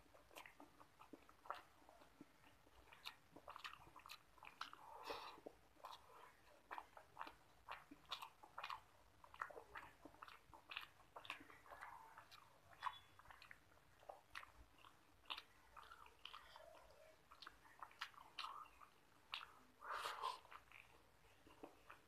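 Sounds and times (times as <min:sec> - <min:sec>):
eating clicks and smacks: 0:00.0 - 0:22.0
mouth chewing: 0:00.0 - 0:22.0.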